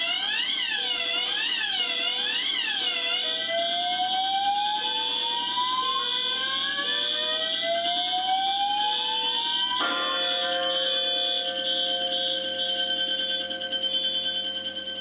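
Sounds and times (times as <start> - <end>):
shrill high alarm tones: 0.0 - 15.0
upward sweeping alarm tones: 4.1 - 15.0
lower alarm tone beeping: 9.4 - 15.0.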